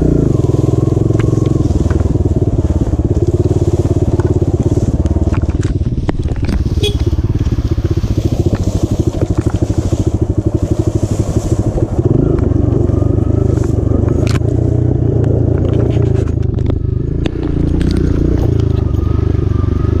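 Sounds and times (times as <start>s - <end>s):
dirt bike engine chugging: 0.0s - 20.0s
bike clicks and rattles: 4.2s - 10.0s, 15.2s - 19.1s.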